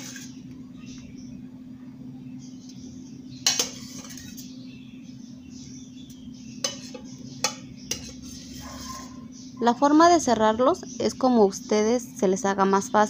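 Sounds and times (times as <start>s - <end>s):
steady low hum: 0.0s - 13.0s
utensil clinking against a bowl: 3.4s - 4.5s, 6.6s - 9.3s.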